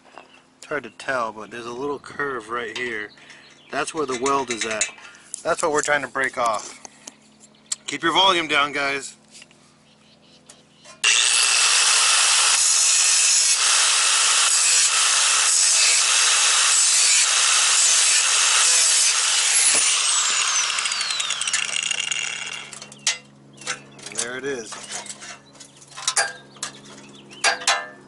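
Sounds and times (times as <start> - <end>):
grinder disc spinning down: 11.0 - 22.9
angle grinder cutting metal: 11.0 - 23.0.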